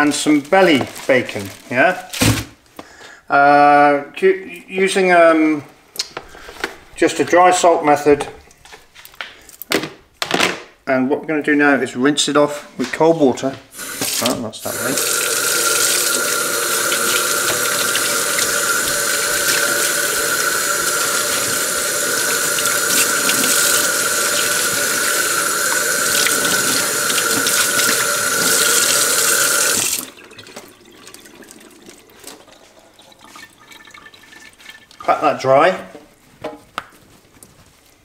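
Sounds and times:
faint handling sounds: 0:00.2 - 0:02.9, 0:35.9 - 0:38.0
tap water running into sink: 0:13.7 - 0:35.1.

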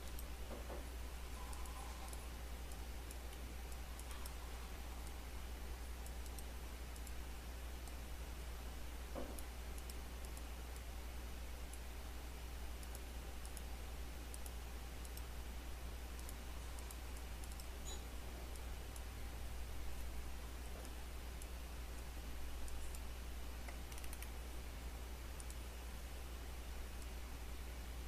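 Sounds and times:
computer mouse clicks: 0:00.0 - 0:04.4, 0:05.9 - 0:07.2, 0:09.2 - 0:10.9, 0:12.8 - 0:13.7, 0:14.3 - 0:15.3, 0:16.1 - 0:19.1, 0:20.7 - 0:24.4, 0:25.3 - 0:25.6
low hum and hiss: 0:00.0 - 0:28.0.

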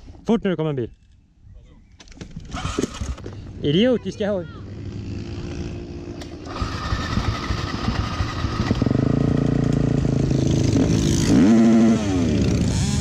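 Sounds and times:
motorcycles riding past: 0:04.6 - 0:13.0.

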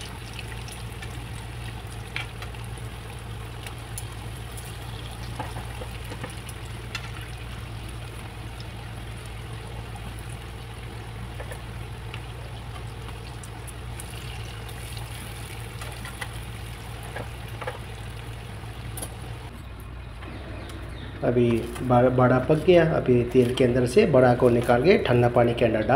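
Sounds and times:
food sizzling in hot oil: 0:00.0 - 0:19.5.

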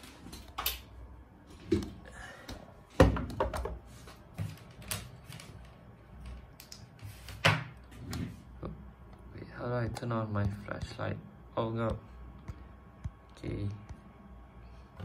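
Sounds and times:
knocks and thuds on tabletop: 0:03.0 - 0:03.8.

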